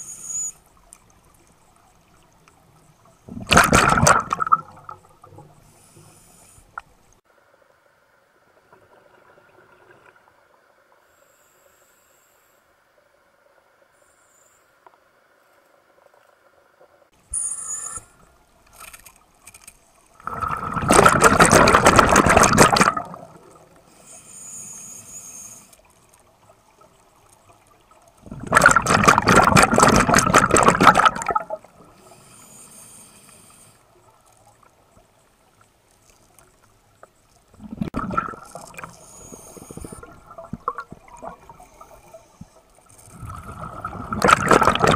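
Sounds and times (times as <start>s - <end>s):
faint regulator hiss: 0.0s - 3.3s, 5.0s - 9.1s, 10.0s - 16.4s, 17.2s - 20.2s, 23.4s - 28.2s, 31.7s - 37.5s, 38.4s - 43.5s
underwater exhaust bubbles: 3.2s - 5.6s, 20.2s - 23.8s, 28.1s - 32.0s, 37.5s - 44.9s.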